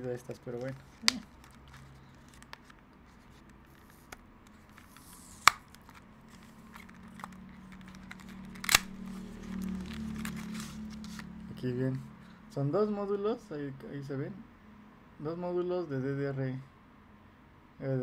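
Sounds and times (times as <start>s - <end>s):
low steady hum: 0.0s - 18.0s
plastic case clicks and snaps: 6.7s - 9.0s.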